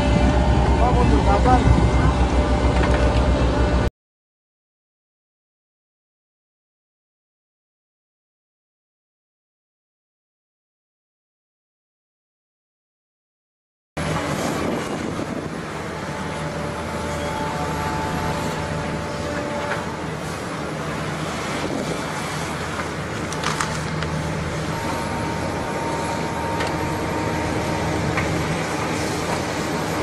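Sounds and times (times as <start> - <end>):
heavy diesel engines running: 0.0 - 3.9, 14.0 - 30.0.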